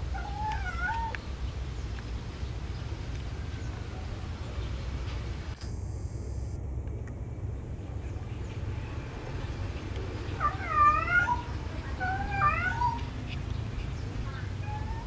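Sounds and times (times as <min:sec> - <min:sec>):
cat yowling: 0:00.0 - 0:01.2, 0:10.4 - 0:13.1, 0:14.6 - 0:15.0.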